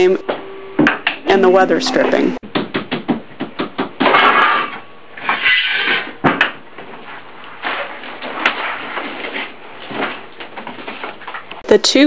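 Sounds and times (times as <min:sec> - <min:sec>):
rubber strip rustling scrapes: 0:05.2 - 0:06.2.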